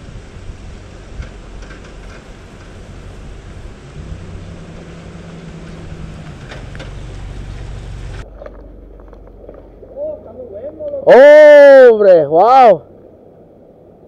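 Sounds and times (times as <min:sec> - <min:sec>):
vehicle engine hum passing: 0:00.0 - 0:11.0
traffic noise: 0:00.0 - 0:14.0
wind hiss: 0:00.0 - 0:14.0.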